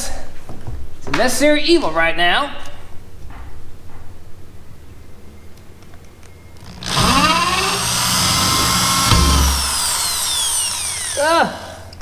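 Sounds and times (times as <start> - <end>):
power drill drilling into fiberglass: 6.6 - 11.2.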